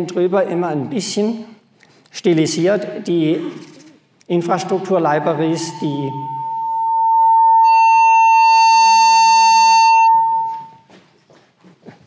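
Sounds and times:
harsh buzzy ringing tone: 5.3s - 10.8s
microphone feedback howl: 5.3s - 10.9s.

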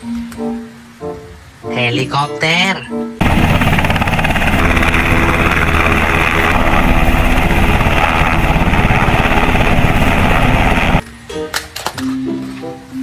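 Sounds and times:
helicopter engine noise: 3.2s - 11.0s
helicopter rotor chop: 3.2s - 11.0s.

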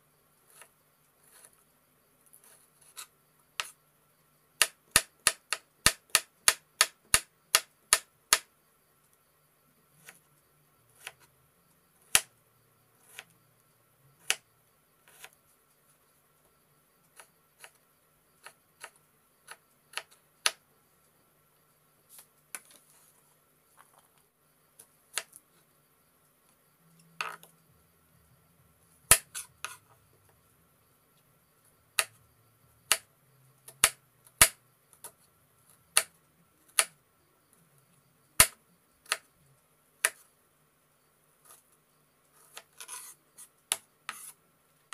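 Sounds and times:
knife striking wooden chopping board: 29.1s - 29.8s.

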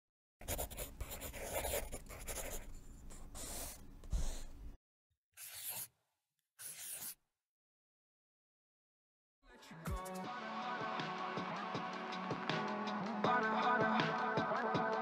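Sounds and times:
pencil scratching on paper: 0.4s - 4.6s, 5.4s - 5.9s, 6.6s - 7.2s.

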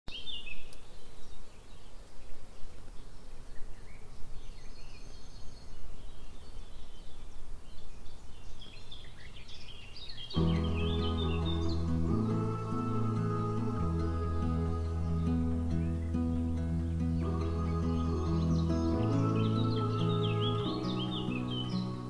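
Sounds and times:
bird chirps and calls: 0.1s - 22.0s
low background rumble: 10.4s - 22.0s.

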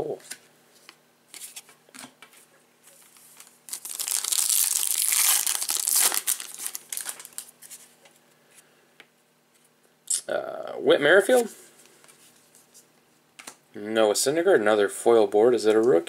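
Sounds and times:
plastic wrapper tearing and crinkling: 3.0s - 7.6s.

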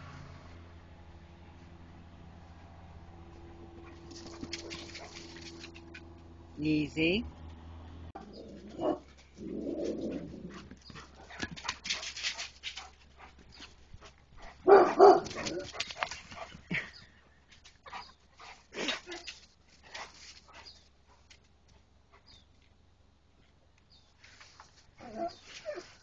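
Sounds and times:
dogs barking: 8.2s - 9.2s, 14.6s - 15.8s.

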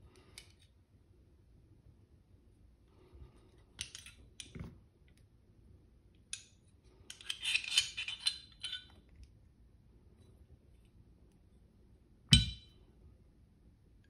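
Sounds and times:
pistol parts clicking: 3.8s - 4.5s.

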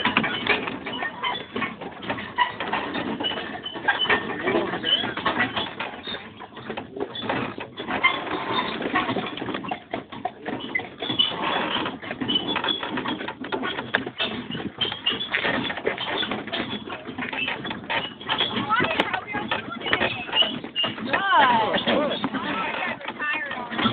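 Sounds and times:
wagon and harness rattling: 0.0s - 23.9s
faint high squeaks: 10.5s - 23.9s.

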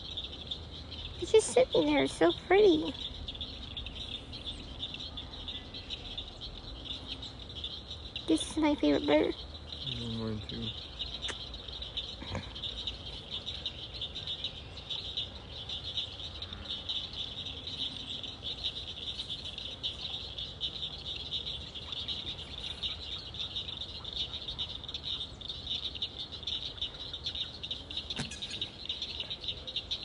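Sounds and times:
animal chorus of pulsing trills: 0.0s - 30.0s.

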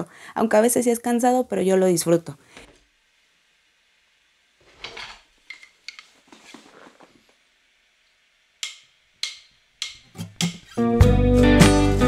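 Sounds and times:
faint clatter of household objects: 4.6s - 7.4s.

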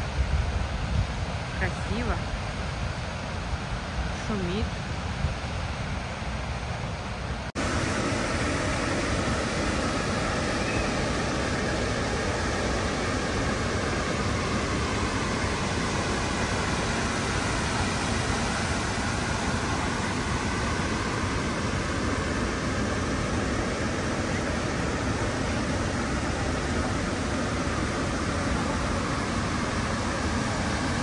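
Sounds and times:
waterfall rushing: 7.5s - 31.0s.

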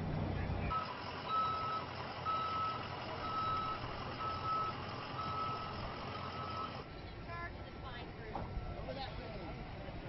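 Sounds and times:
vehicle and outdoor noise: 0.0s - 10.0s
reversing alarm beeping: 0.7s - 6.9s.

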